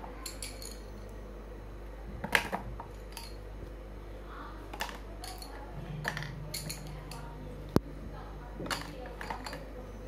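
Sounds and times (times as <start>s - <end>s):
pens clicking and clattering: 4.7s - 7.3s.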